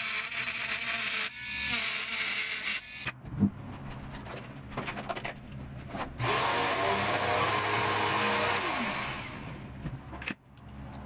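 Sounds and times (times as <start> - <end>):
rotary tool whining: 0.0 - 3.2.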